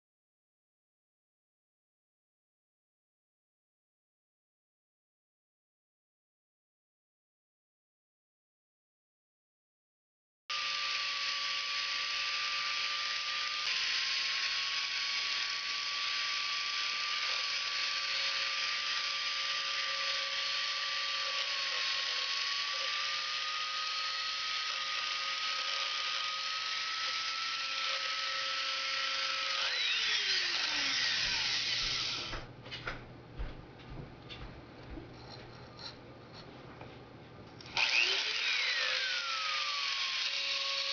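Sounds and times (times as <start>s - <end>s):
rotary tool spinning down: 10.5s - 32.4s, 37.6s - 40.9s
rotary tool high whine: 10.5s - 32.5s, 37.6s - 40.9s.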